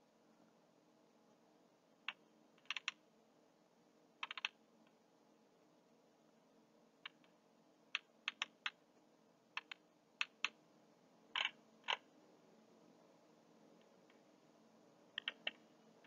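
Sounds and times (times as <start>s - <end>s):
computer keys tapping: 2.1s - 3.0s, 4.2s - 4.6s, 8.0s - 8.8s, 9.6s - 10.6s, 11.4s - 12.1s, 15.1s - 15.6s.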